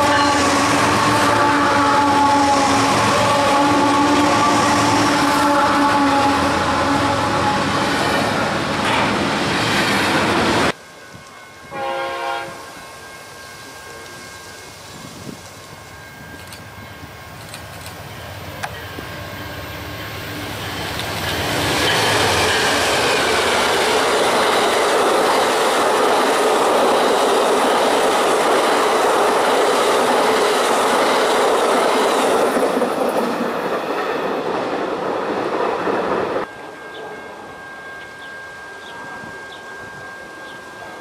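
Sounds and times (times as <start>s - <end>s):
train passing at speed: 0.0s - 41.0s
wheels on rail: 0.0s - 41.0s.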